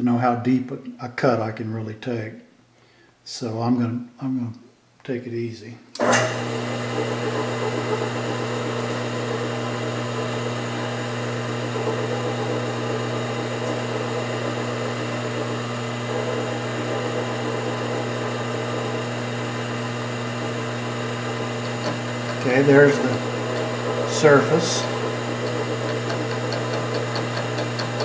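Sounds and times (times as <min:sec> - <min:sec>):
milling machine spindle running: 0:06.2 - 0:28.0.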